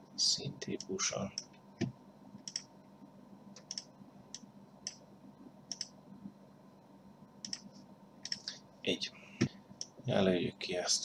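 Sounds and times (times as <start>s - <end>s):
computer mouse clicking: 0.8s - 2.7s, 3.6s - 5.0s, 5.7s - 6.0s, 7.4s - 8.6s.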